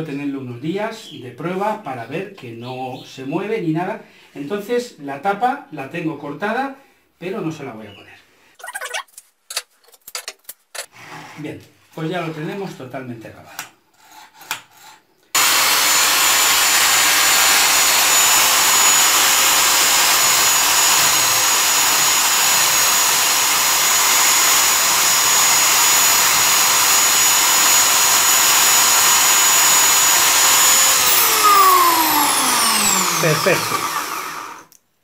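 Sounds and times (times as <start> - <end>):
wood sanding against disc: 15.4 - 34.5
electric drill sander whining: 15.4 - 34.7.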